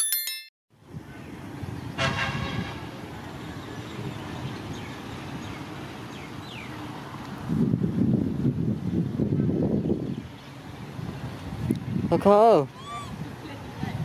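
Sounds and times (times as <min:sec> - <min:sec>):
short bell chime: 0:00.0 - 0:00.5
traffic rumble: 0:00.8 - 0:14.0
horn toot: 0:02.0 - 0:02.9.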